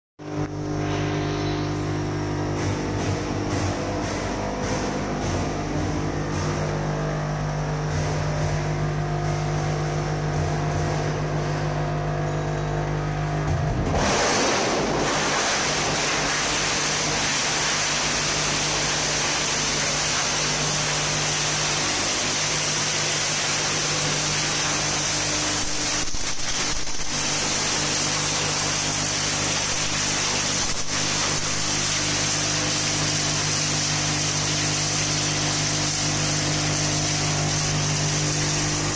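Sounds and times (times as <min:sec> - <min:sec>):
motor hum: 0:00.2 - 0:38.9
plastic shredding grind: 0:13.7 - 0:38.9.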